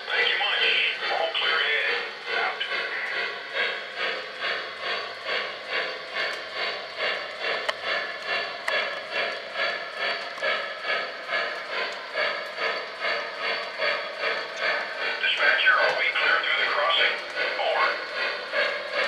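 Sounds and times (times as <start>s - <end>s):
model steam locomotive chuffing: 0.0s - 19.0s.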